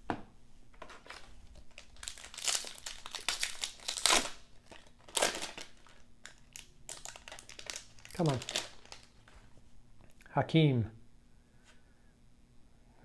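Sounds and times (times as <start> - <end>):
wrapper crinkling: 0.8 - 9.5.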